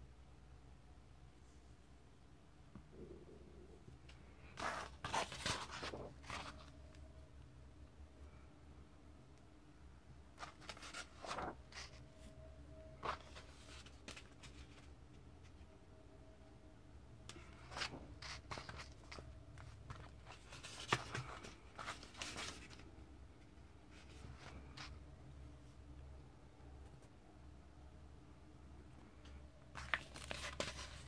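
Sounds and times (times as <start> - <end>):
faint steady hum: 0.0 - 31.0
comic book pages turning: 4.5 - 6.7, 10.4 - 12.0, 17.5 - 22.9, 29.7 - 31.0.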